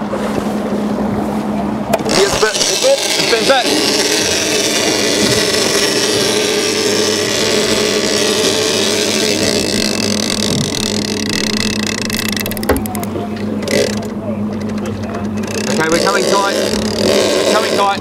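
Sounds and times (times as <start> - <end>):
boat wake wash: 0.0 - 18.0
outboard motor running: 0.0 - 18.0
fishing reel ratcheting clicks: 9.6 - 13.1.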